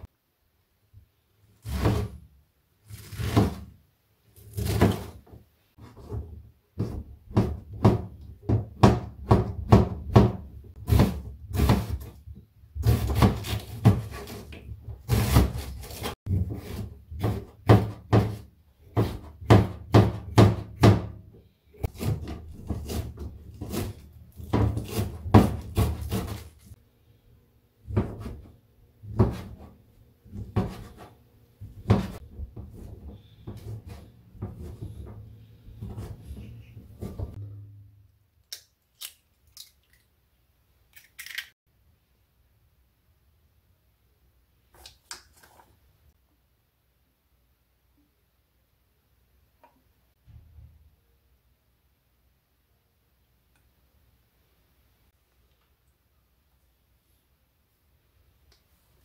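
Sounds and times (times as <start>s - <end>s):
knife chopping on plastic board: 6.8s - 12.1s, 12.8s - 21.2s, 21.8s - 26.7s, 27.9s - 28.5s, 29.1s - 29.7s, 30.3s - 37.4s.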